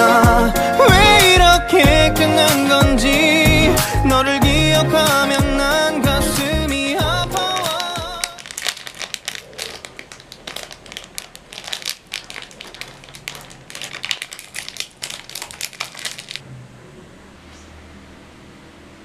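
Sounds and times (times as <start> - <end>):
plastic wrapper crinkling: 4.9 - 16.4.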